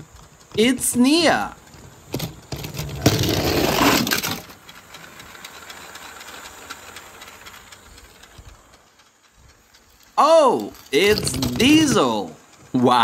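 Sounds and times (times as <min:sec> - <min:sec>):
plastic toys clattering: 0:00.4 - 0:05.2, 0:10.6 - 0:12.4.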